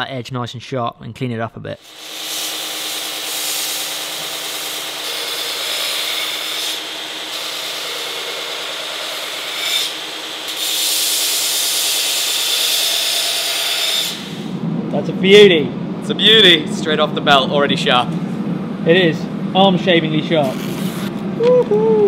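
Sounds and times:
belt grinder grinding blade: 1.8 - 14.4.

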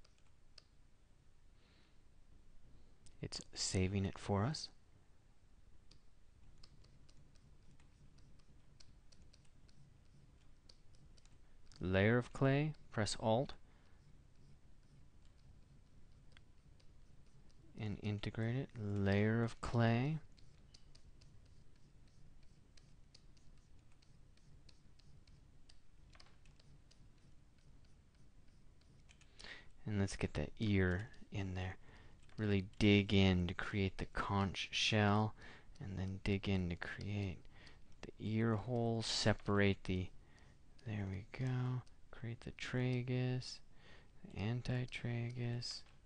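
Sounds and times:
computer keys clicking: 0.0 - 0.8, 5.8 - 46.0
low steady hum: 0.0 - 46.0
keyboard and pen tablet clicking: 13.8 - 17.6, 20.3 - 29.5.

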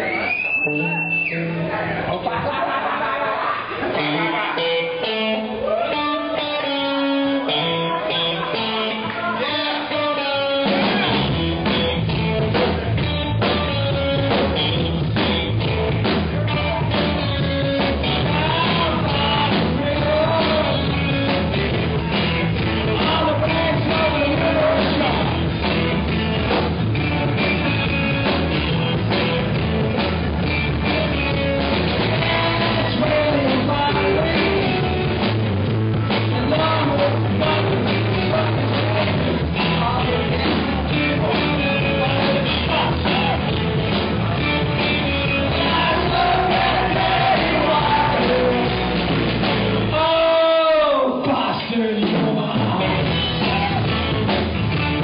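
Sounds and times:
guitar line: 0.0 - 2.8, 3.4 - 55.0
rock band playing live: 0.0 - 55.0
person singing: 16.4 - 25.5, 30.8 - 35.2, 36.0 - 43.6, 44.4 - 49.0, 49.7 - 54.2.

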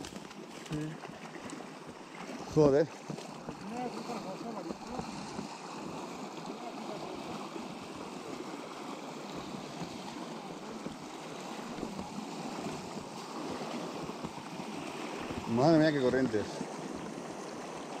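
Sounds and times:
river rushing: 0.0 - 18.0.

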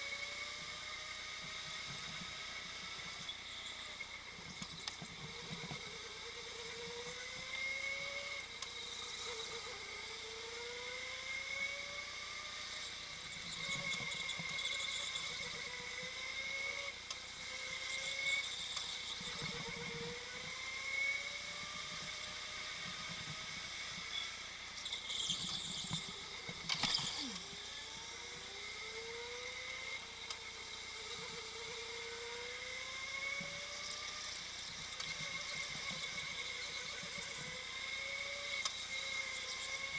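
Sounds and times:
go-kart drivetrain whining: 0.0 - 39.9.

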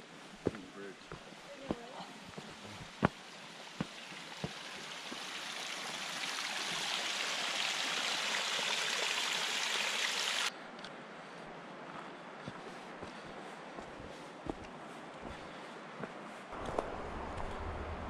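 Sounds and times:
stream water rushing: 2.2 - 10.5.

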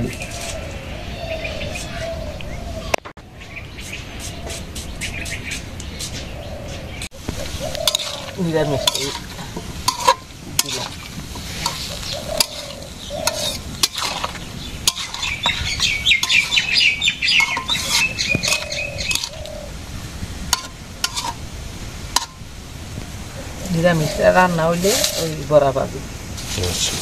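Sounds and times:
bird chirping rapidly: 0.1 - 9.3, 10.2 - 19.7
food sizzling in oil: 7.1 - 27.0
metal spatula scraping a wok: 7.4 - 19.5, 20.5 - 21.5, 22.1 - 22.4, 24.2 - 25.4.

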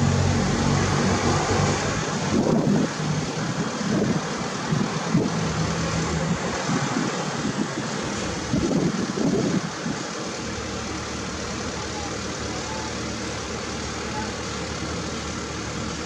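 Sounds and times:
truck engine humming: 0.0 - 16.0
wind buffeting the microphone: 2.1 - 5.6, 6.2 - 10.1.

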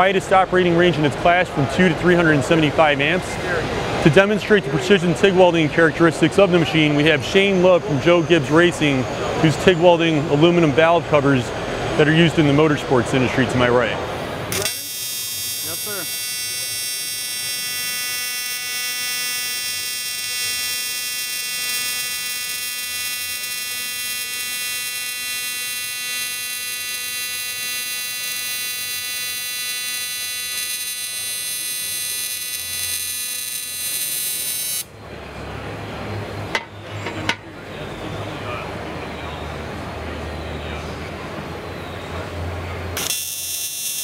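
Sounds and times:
welding arc buzzing: 14.0 - 34.9, 43.0 - 44.0.

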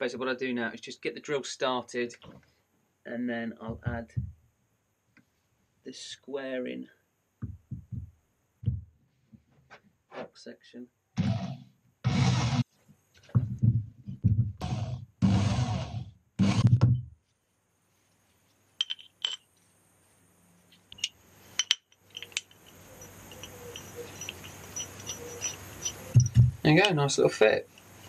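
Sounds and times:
metal parts clinking: 18.8 - 19.6, 20.8 - 26.4.

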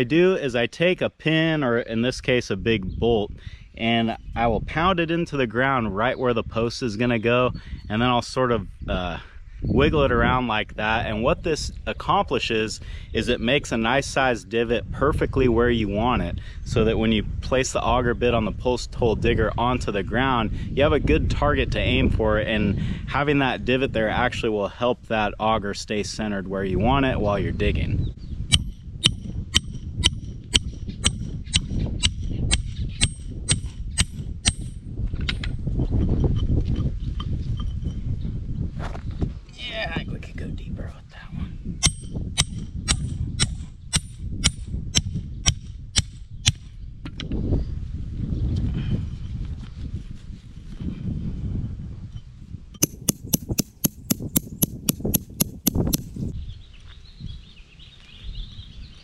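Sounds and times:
hammer striking steel bolt: 28.5 - 34.8, 52.8 - 56.0.

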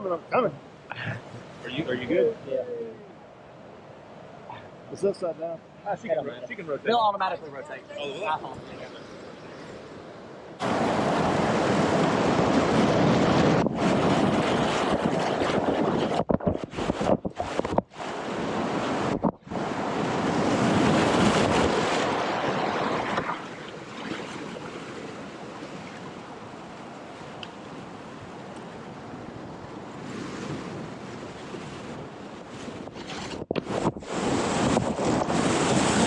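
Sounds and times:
whitewater rushing: 10.6 - 15.8.

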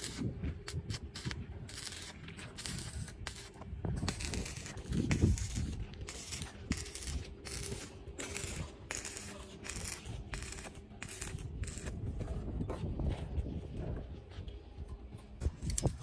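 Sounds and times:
welding arc crackling: 0.0 - 12.0.

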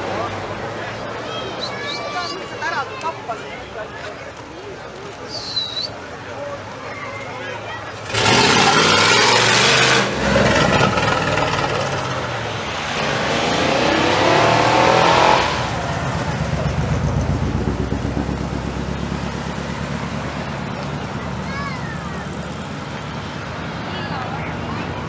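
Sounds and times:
tyres screeching: 5.2 - 6.0
cars rolling slowly past: 6.0 - 25.0
car engine revving: 8.0 - 23.7.

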